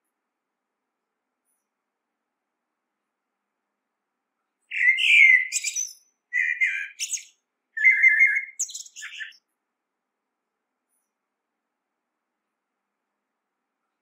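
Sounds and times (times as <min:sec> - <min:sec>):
blackbird singing: 0:04.7 - 0:09.4.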